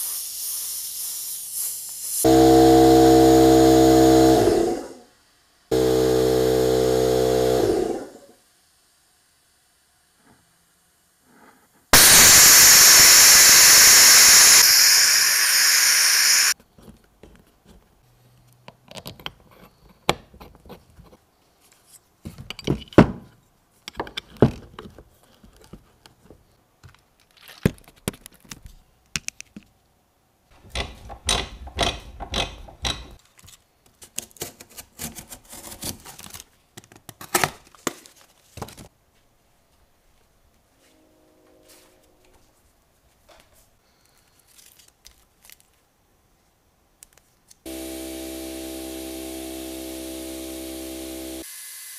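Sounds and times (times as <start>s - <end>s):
spray can hissing: 0.0s - 2.3s, 12.0s - 16.6s.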